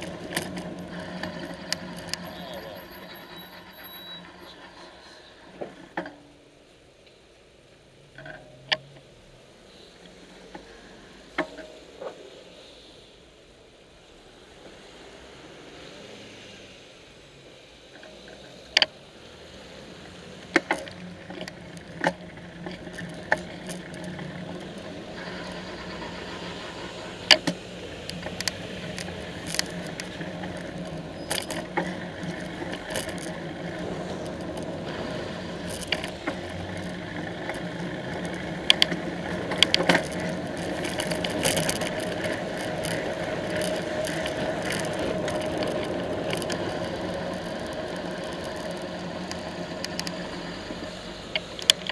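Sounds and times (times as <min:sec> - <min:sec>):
bike clicks and knocks: 0:00.0 - 0:04.7, 0:20.4 - 0:51.9
low hum of traffic: 0:00.0 - 0:51.9
road and wind noise: 0:00.0 - 0:51.9.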